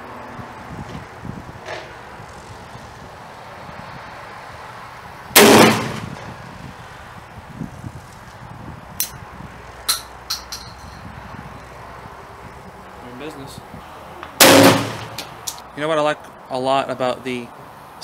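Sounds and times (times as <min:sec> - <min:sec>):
shotgun firing: 0:05.4 - 0:06.2, 0:14.4 - 0:15.2.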